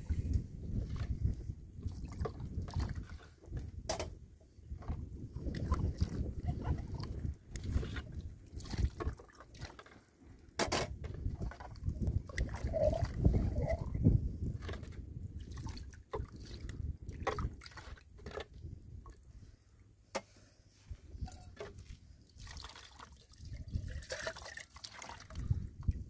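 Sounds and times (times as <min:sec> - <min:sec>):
water splashing and dripping: 0:00.8 - 0:03.3, 0:05.4 - 0:10.0, 0:11.2 - 0:19.2, 0:21.6 - 0:26.0.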